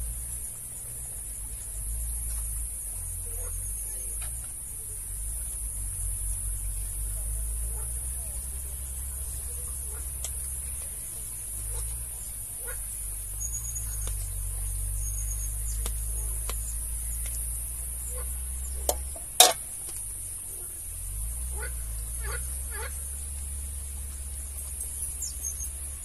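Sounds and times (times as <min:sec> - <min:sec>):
metal spoon scraping and tapping: 0:18.9 - 0:19.6
sharp knocks on metal pot: 0:18.9 - 0:19.6.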